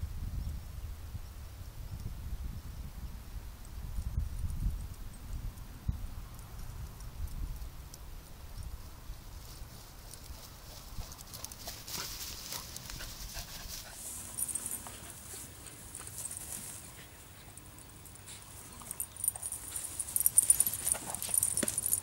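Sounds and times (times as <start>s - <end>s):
dog paws running through grass: 9.1s - 22.0s.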